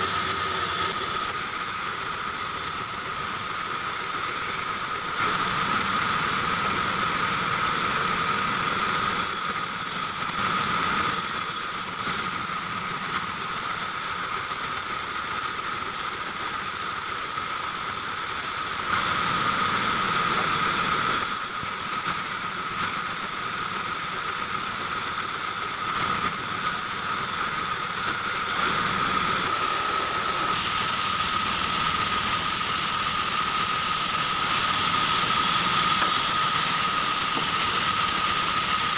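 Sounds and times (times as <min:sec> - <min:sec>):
band saw cutting wood: 0:00.0 - 0:38.9.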